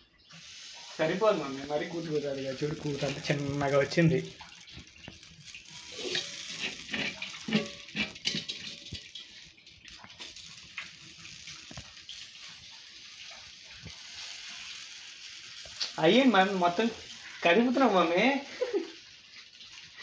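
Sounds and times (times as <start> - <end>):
batter sizzling in a pan: 0.0 - 20.0
metal spoon scraping a pan: 2.1 - 13.2.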